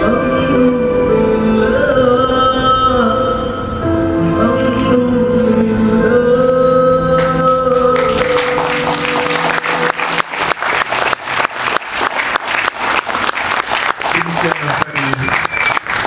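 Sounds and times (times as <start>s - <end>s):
music of long held notes: 0.0s - 11.1s
audience applauding: 7.5s - 16.0s.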